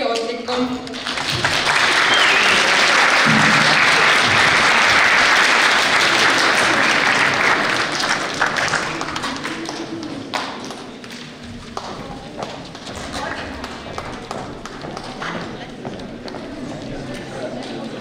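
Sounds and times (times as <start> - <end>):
audience applauding: 0.8 - 15.6.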